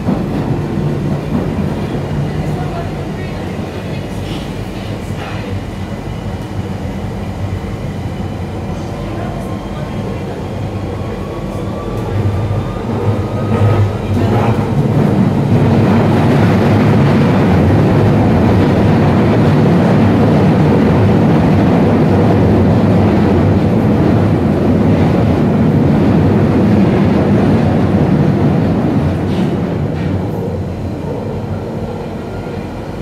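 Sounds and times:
train rumbling in tunnel: 0:00.0 - 0:33.0.

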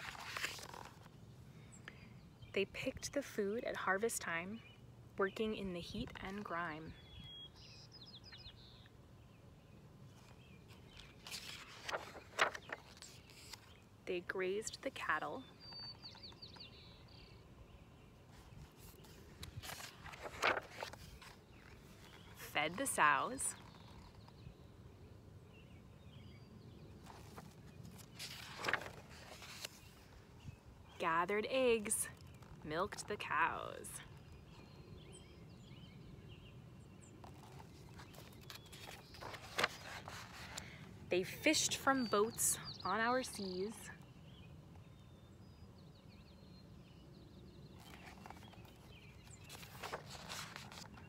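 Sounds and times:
paper page turning: 0:00.0 - 0:01.2, 0:10.2 - 0:13.8, 0:18.4 - 0:24.4, 0:27.0 - 0:30.1, 0:37.2 - 0:40.7, 0:47.8 - 0:51.0
faint outdoor background noise: 0:00.0 - 0:51.0.

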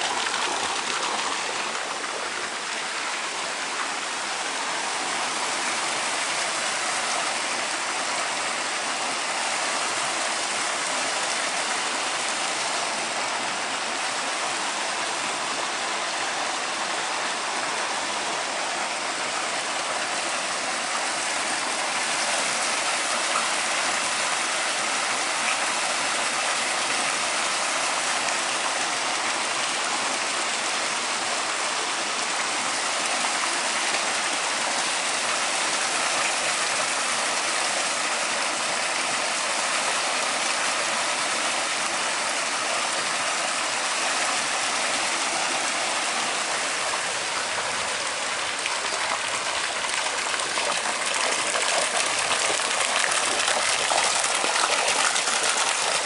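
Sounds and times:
water pouring into pond: 0:00.0 - 0:56.0.

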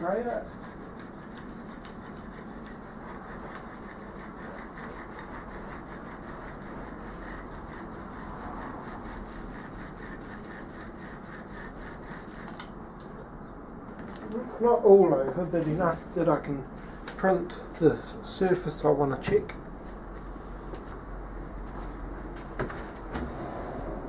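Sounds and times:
tool scrubbing on stone plate: 0:00.0 - 0:12.7.

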